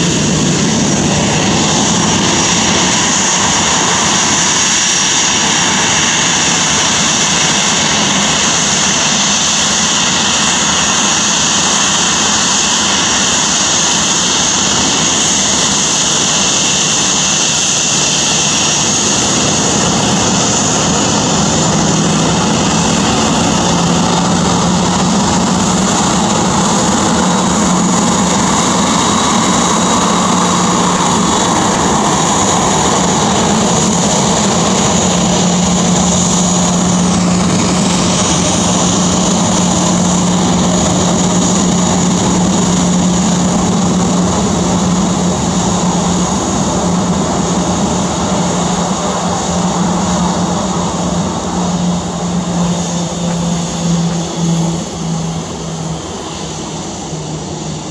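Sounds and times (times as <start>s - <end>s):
jet engine whine: 0.0s - 57.9s
low hum: 0.0s - 57.9s.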